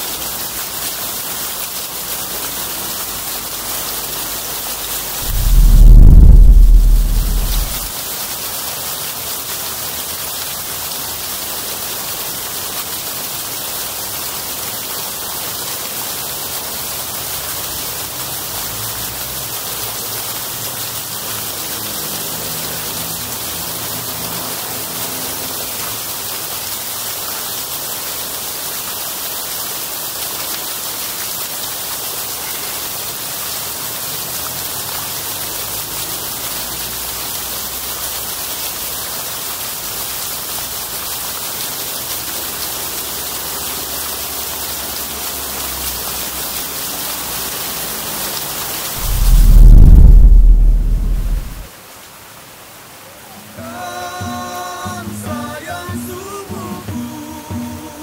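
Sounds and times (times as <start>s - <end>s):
fountain jets splashing: 0.0s - 5.2s, 6.0s - 49.0s
low traffic rumble: 5.2s - 7.9s, 49.0s - 51.7s.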